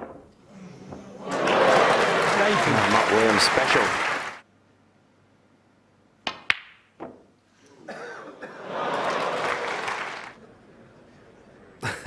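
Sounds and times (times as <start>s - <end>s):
audience applauding: 1.0s - 4.4s, 8.6s - 10.4s.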